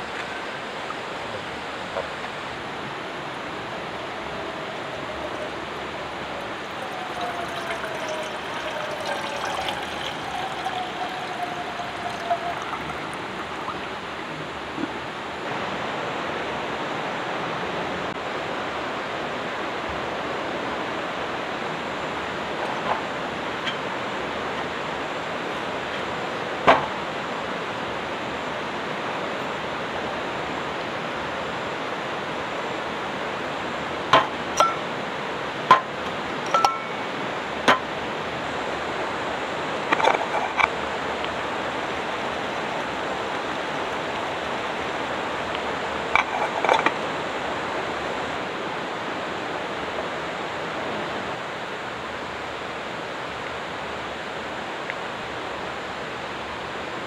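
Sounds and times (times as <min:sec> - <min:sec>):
metal cookware clinking: 0:06.7 - 0:13.7, 0:34.6 - 0:34.9, 0:36.5 - 0:37.0.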